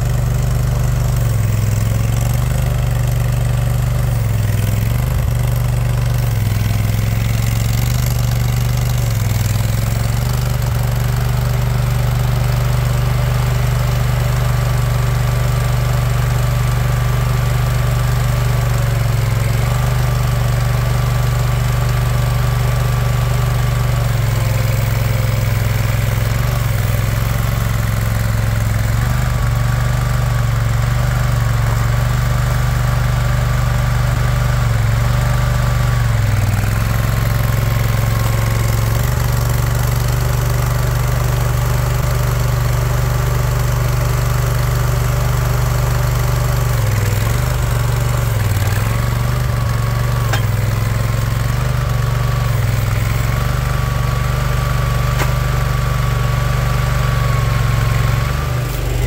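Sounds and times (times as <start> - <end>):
skid steer engine running: 0.0 - 59.0.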